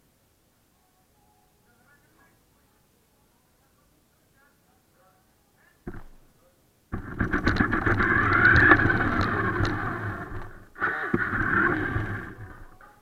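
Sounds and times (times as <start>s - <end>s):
clicking and rattling: 7.0s - 12.8s
toy car motor whining: 7.0s - 12.8s.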